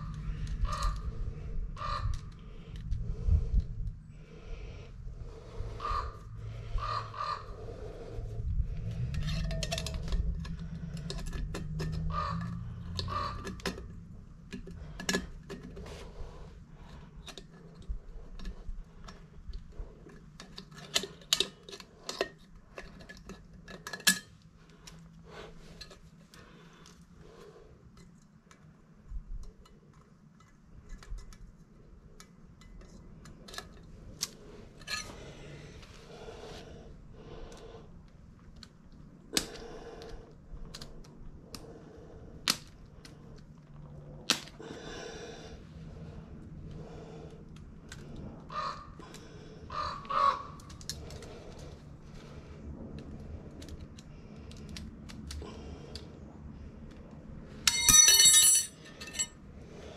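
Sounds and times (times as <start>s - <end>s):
hand tools clicking and clinking: 9.0s - 16.0s, 20.0s - 25.0s, 32.6s - 35.2s, 57.6s - 59.4s.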